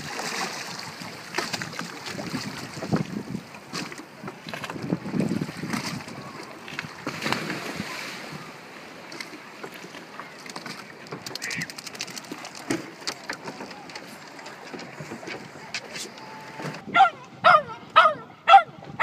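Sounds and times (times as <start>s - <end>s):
water splashing and dripping: 0.0s - 3.2s
water lapping against boat: 0.0s - 19.0s
wind on microphone: 0.8s - 8.5s, 16.4s - 19.0s.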